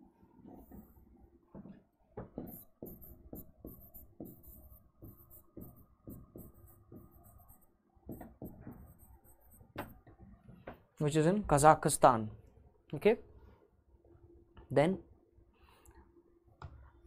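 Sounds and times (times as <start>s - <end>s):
stylus tapping and scratching screen: 1.6s - 10.3s.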